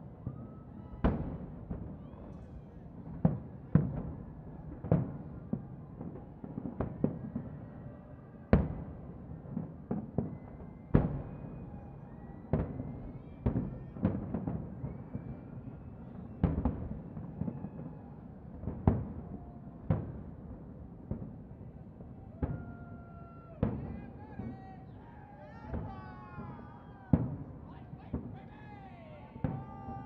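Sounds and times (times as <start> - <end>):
distant firework bangs: 23.5 - 30.0.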